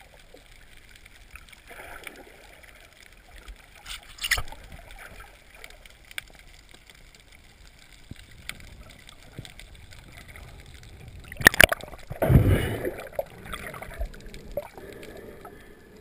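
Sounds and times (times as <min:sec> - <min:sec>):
underwater wash: 0:00.0 - 0:16.0
sudden water swish: 0:11.4 - 0:14.7.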